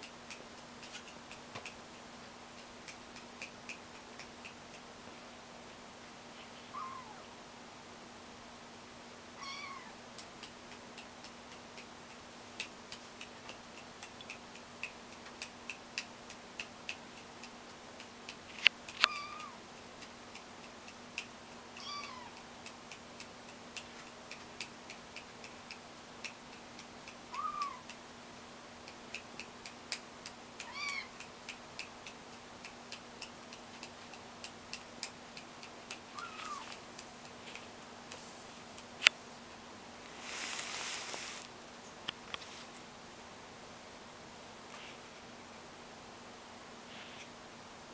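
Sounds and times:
kitten mewing: 6.7s - 7.3s, 9.4s - 10.0s, 19.1s - 19.6s, 21.8s - 22.5s, 27.3s - 27.9s, 30.6s - 31.2s, 36.1s - 36.8s.

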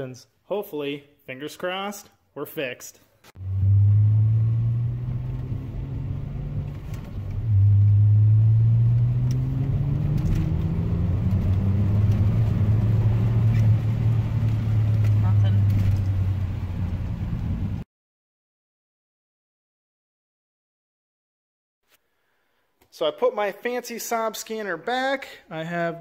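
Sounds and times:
car engine under load: 3.4s - 17.8s.

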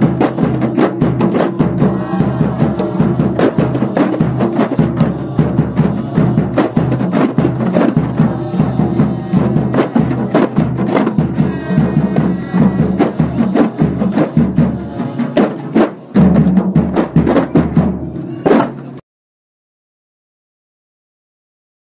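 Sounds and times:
bass drum thumps: 0.0s - 15.4s
frame drums struck by hand: 0.0s - 18.9s.

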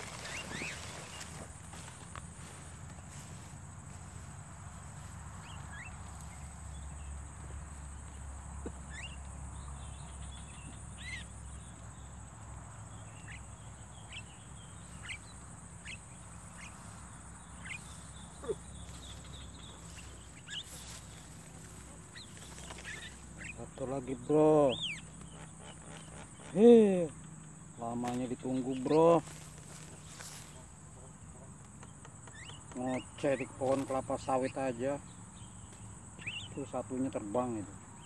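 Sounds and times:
mynas chirping: 0.0s - 3.5s, 5.0s - 12.2s, 12.9s - 36.8s.

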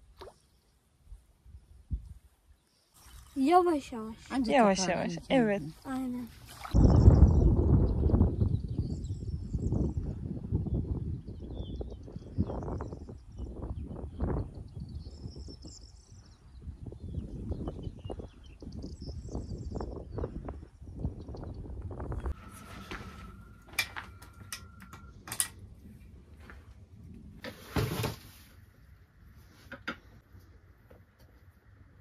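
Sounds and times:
wind buffeting microphone: 6.6s - 27.4s
rustling scrape: 22.3s - 24.4s, 27.4s - 28.7s.

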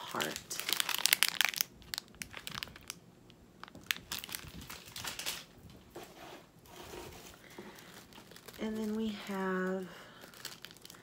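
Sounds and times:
plastic wrapper crinkling: 0.0s - 5.8s, 6.8s - 11.0s
shredded paper rustling: 4.1s - 9.6s.

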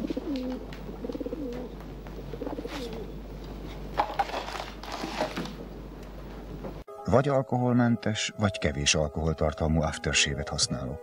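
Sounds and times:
pigeons cooing: 0.0s - 3.2s.

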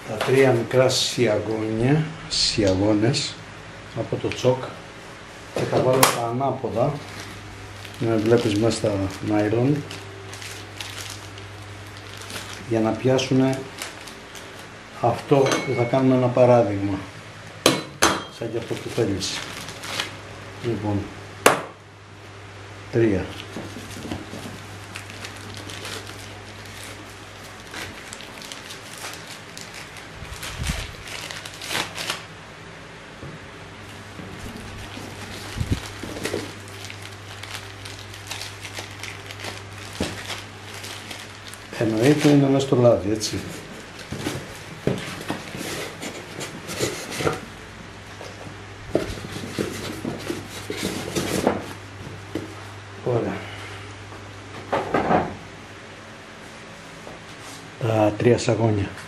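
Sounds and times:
low steady hum: 0.0s - 59.0s
plastic bags crinkling: 5.6s - 16.6s, 18.3s - 20.2s, 23.1s - 32.3s, 33.8s - 47.6s
foam and cardboard scraping: 43.3s - 47.5s, 49.0s - 51.7s.

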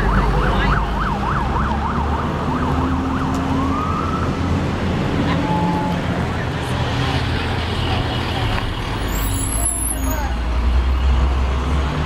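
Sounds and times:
siren yelping and wailing: 0.0s - 4.5s.

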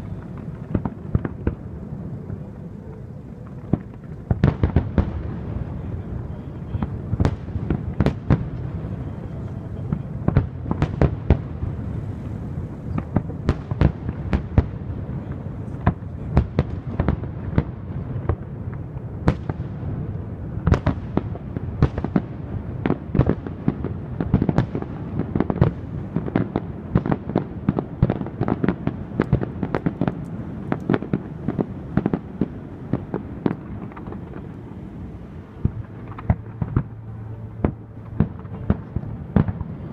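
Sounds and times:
low rumble: 0.0s - 20.6s, 29.9s - 39.9s
fireworks bursting: 0.0s - 39.9s.

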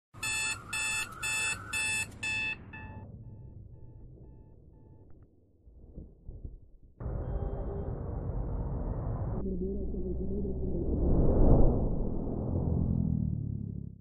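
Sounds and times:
digital alarm clock beeping: 0.2s - 5.1s.

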